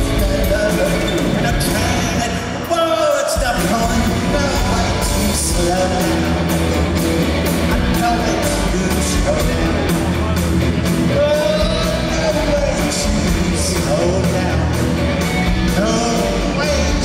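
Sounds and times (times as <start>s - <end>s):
man singing lead: 0.0s - 6.7s, 7.8s - 15.0s, 15.6s - 17.0s
live rock band playing: 0.0s - 17.0s.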